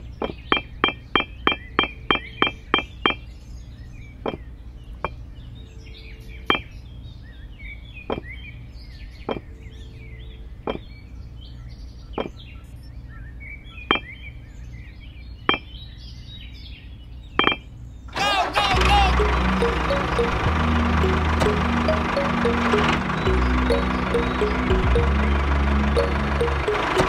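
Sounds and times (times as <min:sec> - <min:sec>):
faint bird chirping: 0:00.0 - 0:18.1.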